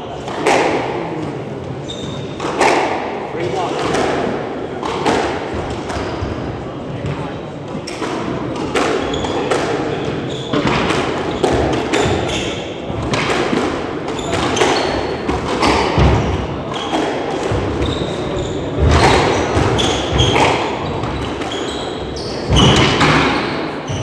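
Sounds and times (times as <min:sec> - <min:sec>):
shoes squeaking on wooden floor: 0:01.6 - 0:02.5, 0:09.0 - 0:12.7, 0:17.6 - 0:24.0.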